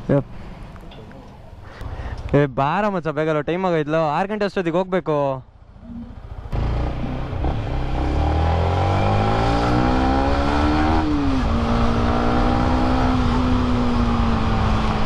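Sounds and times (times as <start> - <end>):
motorcycle engine revving: 5.6 - 15.0.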